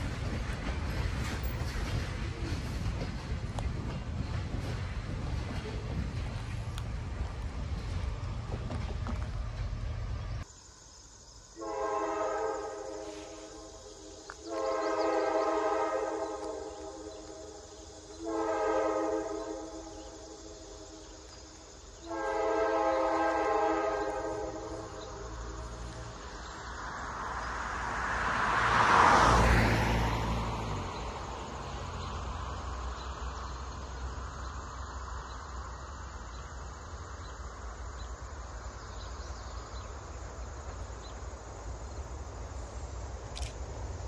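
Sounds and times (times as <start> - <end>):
distant diesel locomotive horn: 11.6 - 26.1
vehicle passing on road: 24.5 - 44.0.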